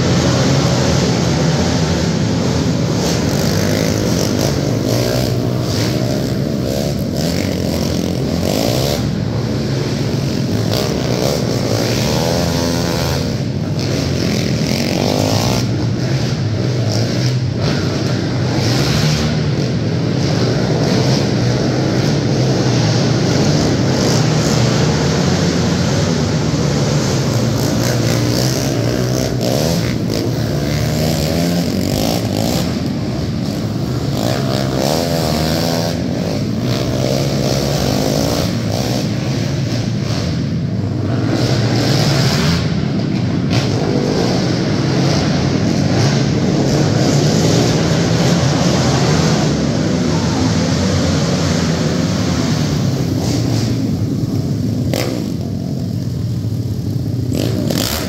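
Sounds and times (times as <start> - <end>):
quad engines revving: 0.0 - 58.0.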